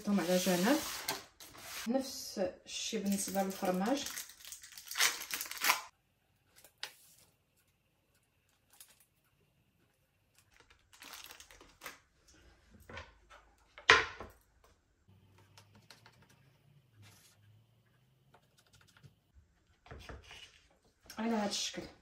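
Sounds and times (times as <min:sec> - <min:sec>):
plastic film crinkling: 0:03.0 - 0:05.9, 0:10.4 - 0:12.0.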